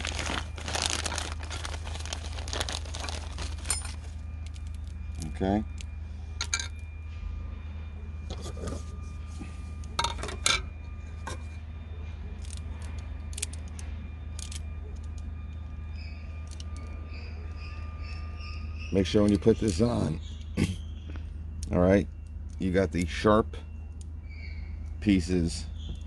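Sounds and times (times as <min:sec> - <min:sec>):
low background hum: 0:00.0 - 0:26.0
saw chain links clinking: 0:02.8 - 0:04.8.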